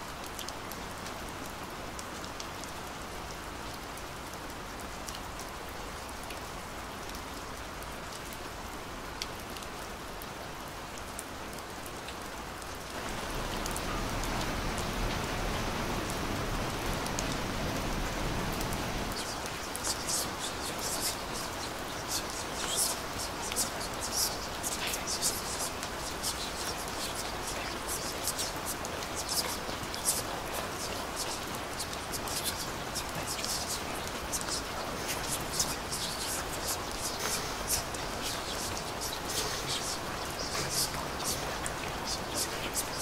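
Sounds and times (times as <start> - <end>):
steady rain falling: 0.0 - 43.0
drip ticks: 19.1 - 43.0.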